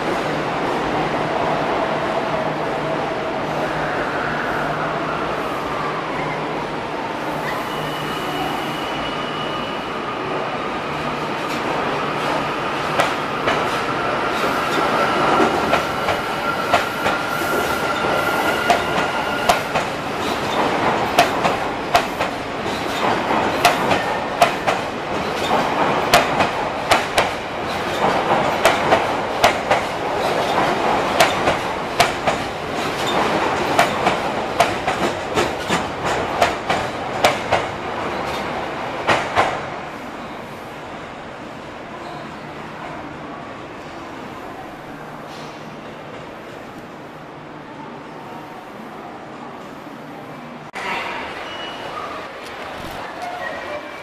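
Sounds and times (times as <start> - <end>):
electric train whine: 2.0 - 21.0.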